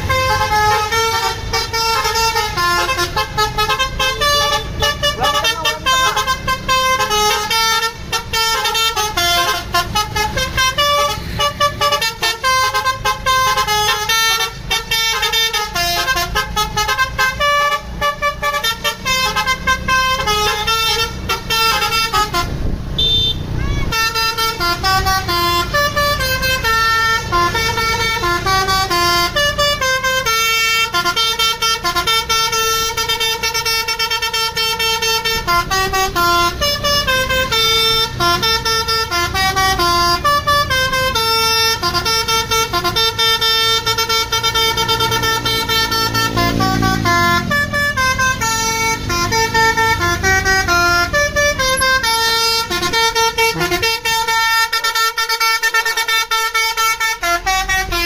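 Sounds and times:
multi-note bus horn tune: 0.0 - 58.0.

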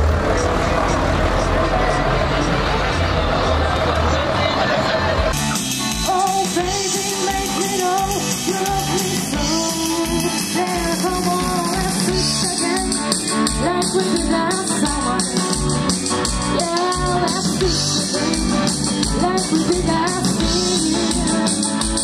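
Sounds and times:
guitars: 0.0 - 22.0
rock band playing: 0.0 - 22.0
person singing: 6.0 - 15.8, 16.4 - 22.0.

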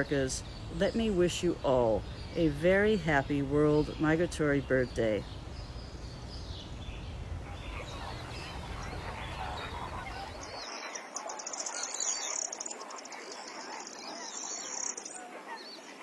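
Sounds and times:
low outdoor background rumble: 0.0 - 10.6
birds calling: 0.0 - 16.0.

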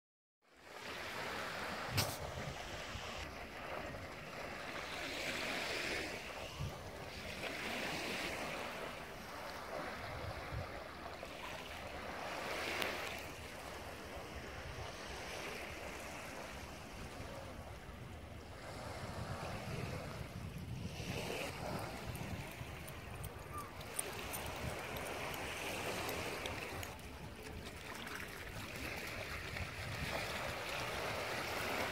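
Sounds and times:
small waves on sandy shore: 0.5 - 31.9
wind rumble on microphone: 5.8 - 7.2, 14.1 - 27.7, 28.8 - 31.9.

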